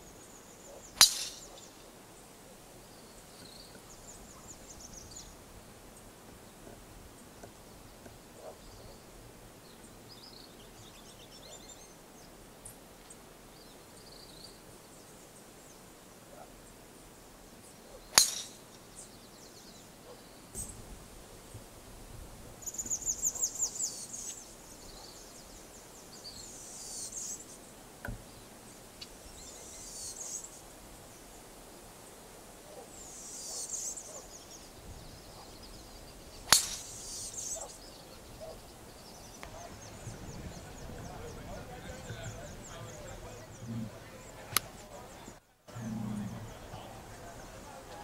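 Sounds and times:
birds chirping and trilling: 0.0s - 16.8s, 17.5s - 20.8s, 22.6s - 31.4s, 32.0s - 48.0s
golf club striking ball: 1.0s - 1.7s, 18.1s - 18.6s, 36.5s - 37.1s.

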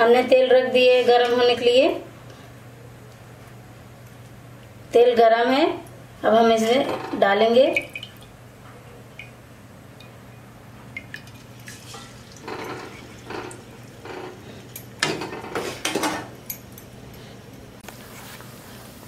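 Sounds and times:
oil sizzling: 11.1s - 14.4s.

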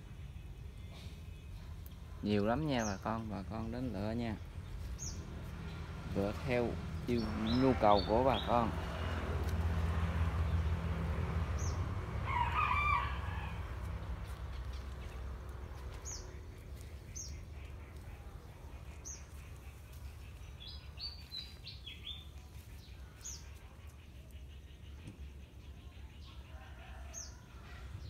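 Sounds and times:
small birds chirping: 0.0s - 28.0s
low rumble: 4.4s - 23.6s
rooster crowing: 12.1s - 14.2s, 26.4s - 28.0s.

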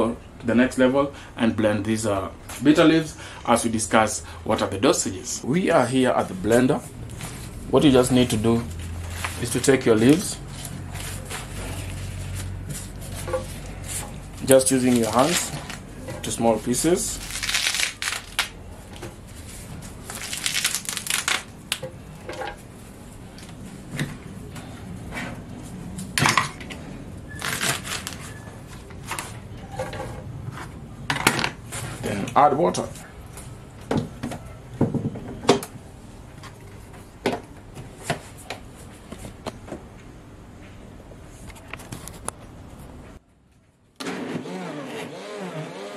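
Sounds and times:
leaves tearing by hand: 14.4s - 15.8s, 16.5s - 18.6s, 20.0s - 21.8s, 27.4s - 28.4s.

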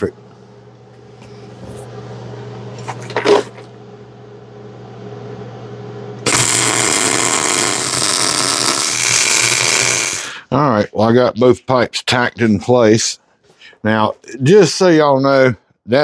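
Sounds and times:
low steady hum: 0.0s - 16.0s
welding arc hissing: 6.2s - 10.4s.

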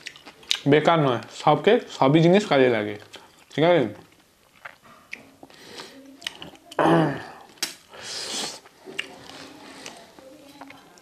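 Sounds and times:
breathy hiss: 7.0s - 8.7s.

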